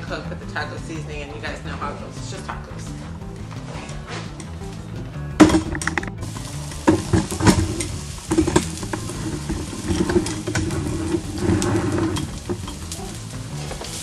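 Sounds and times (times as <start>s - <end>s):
onions sizzling in frying pan: 6.2s - 14.0s.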